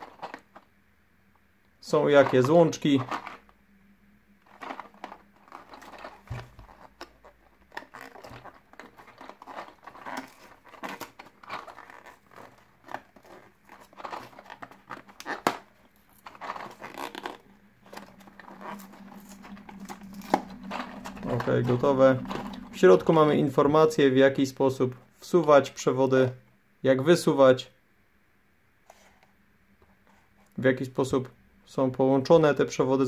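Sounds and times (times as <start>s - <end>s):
cardboard box being torn open: 7.7s - 17.4s.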